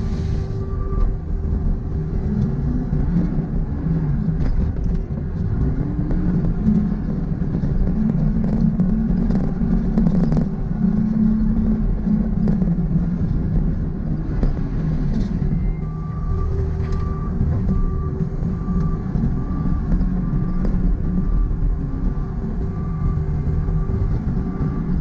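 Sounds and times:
diesel engine running: 0.0 - 25.0
reversing alarm beeping: 0.1 - 1.9, 14.9 - 25.0.

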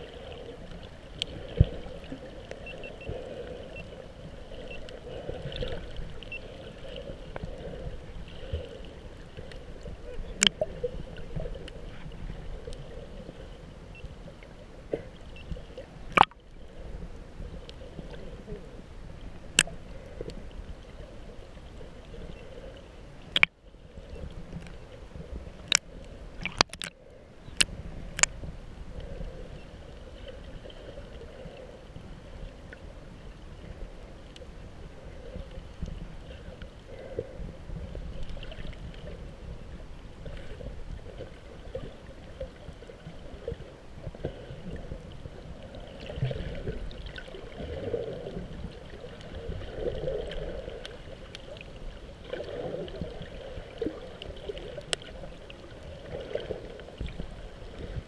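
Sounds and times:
muffled water sloshing and gurgling: 0.0 - 58.0
sharp clicks: 23.3 - 23.5, 26.4 - 27.0.

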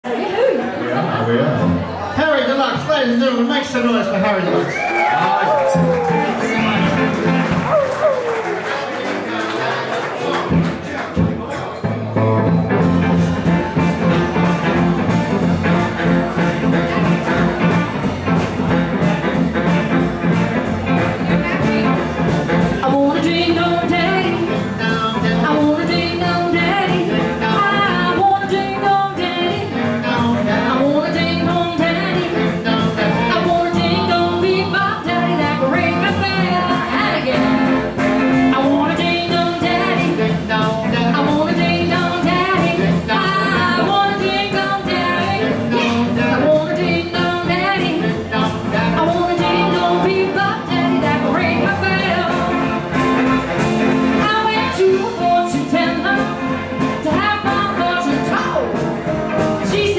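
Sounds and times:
drums: 0.0 - 59.9
electric guitar: 4.5 - 59.9
acoustic guitar: 4.8 - 59.9
lead vocal singing: 22.8 - 37.7.

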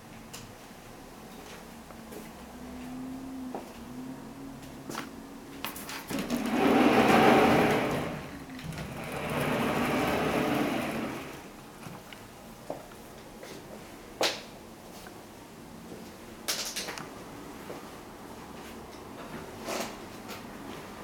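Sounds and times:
sliding door running along track: 5.9 - 11.6.

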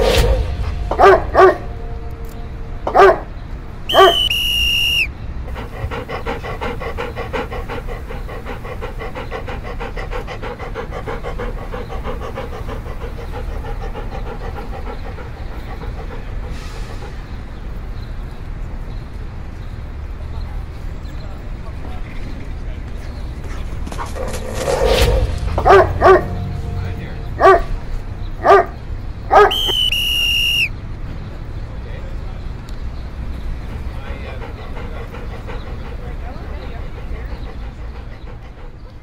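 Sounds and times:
dog barking: 0.9 - 1.7, 2.9 - 3.3, 3.9 - 4.4, 25.6 - 26.4, 27.4 - 27.8, 28.4 - 29.9
dog panting: 2.9 - 30.7, 32.2 - 39.0.

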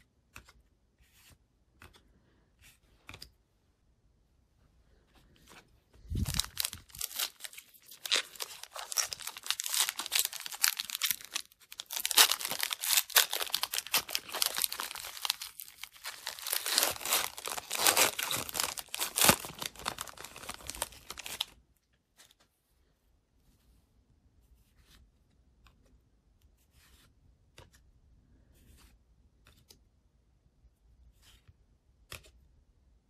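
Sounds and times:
foil wrapper tearing and crinkling: 6.1 - 21.6.

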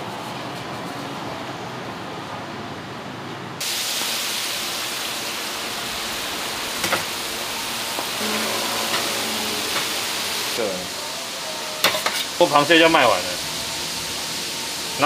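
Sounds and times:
food deep-frying in oil: 3.6 - 11.0.

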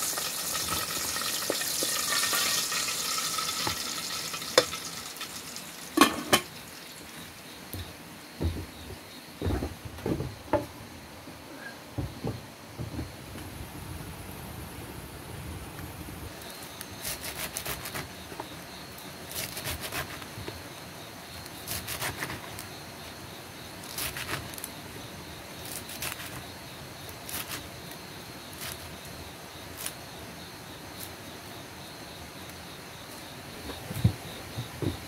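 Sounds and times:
high insect drone: 0.0 - 35.0
knife cutting leafy greens: 16.8 - 18.2, 19.3 - 20.3, 21.5 - 22.7, 23.8 - 24.8, 25.6 - 26.4, 27.1 - 28.9.

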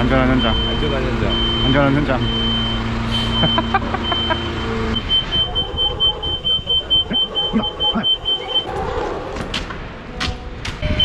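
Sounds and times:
alarm beeping: 0.3 - 8.7.

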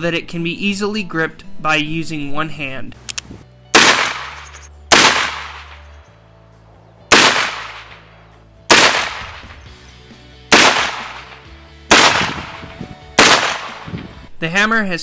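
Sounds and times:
quiet background music: 0.0 - 15.0
revolver shots: 7.1 - 8.0, 10.5 - 13.9.

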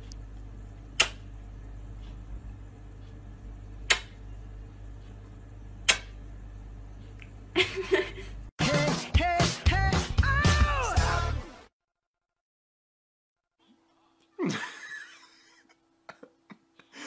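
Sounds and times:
steady low hum: 0.0 - 8.5
sharp clicks: 1.0 - 1.2, 3.9 - 4.2.

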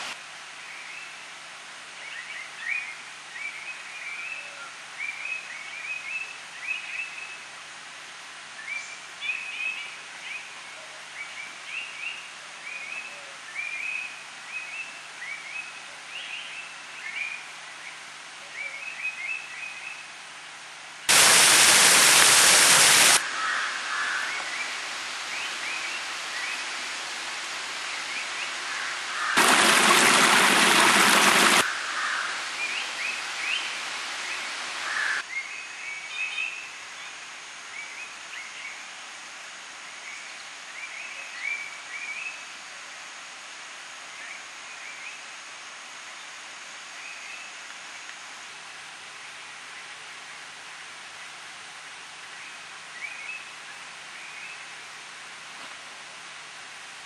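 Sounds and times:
steady hiss: 0.0 - 57.0
bursts of rushing noise: 21.1 - 23.2, 29.3 - 31.7.

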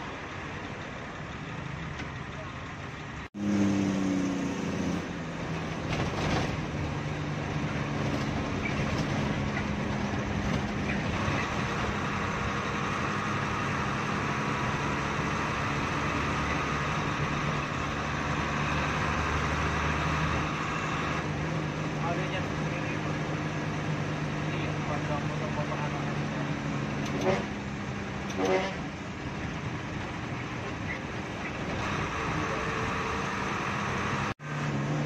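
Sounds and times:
bus engine running: 0.0 - 35.0.

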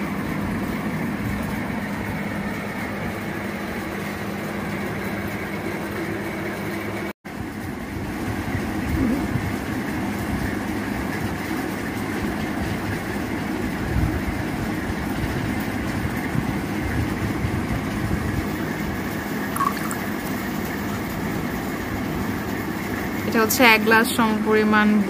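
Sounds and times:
thick drink pouring into cup: 19.6 - 20.1.

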